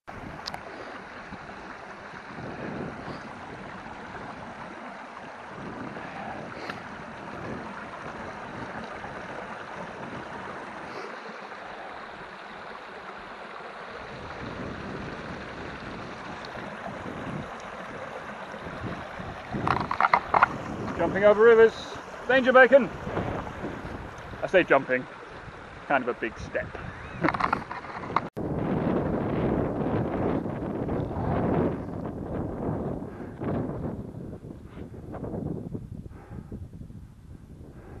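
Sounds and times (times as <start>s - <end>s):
wind rumble on microphone: 0.1s - 11.0s, 13.6s - 38.0s
stream rushing over rocks: 0.1s - 28.3s.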